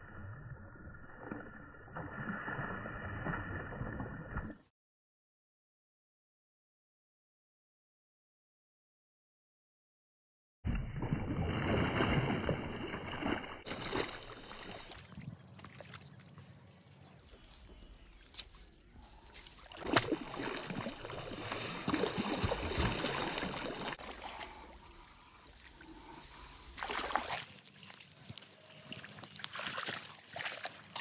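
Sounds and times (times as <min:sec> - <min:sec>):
water sloshing and splashing: 0:10.7 - 0:31.0.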